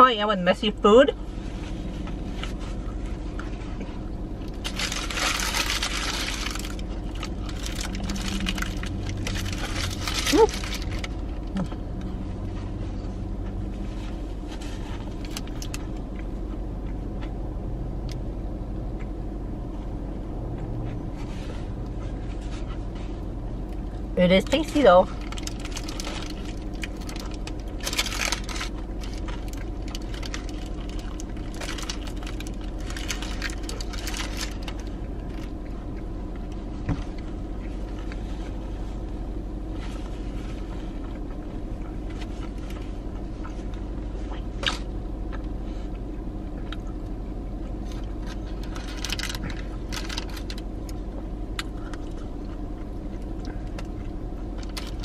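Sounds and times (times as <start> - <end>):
car hum: 0.0 - 55.0
paper wrapper crinkling: 4.4 - 11.6, 14.6 - 15.8, 25.1 - 35.5, 48.2 - 50.7, 54.6 - 55.0
chewing a soft sandwich: 25.1 - 55.0.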